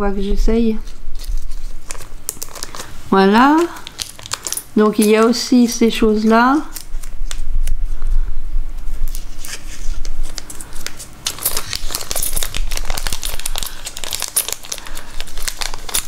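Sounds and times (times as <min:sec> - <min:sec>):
plastic bag crinkling: 0:00.8 - 0:05.1, 0:10.2 - 0:16.0
metal beads clicking: 0:03.6 - 0:05.4, 0:11.2 - 0:16.0.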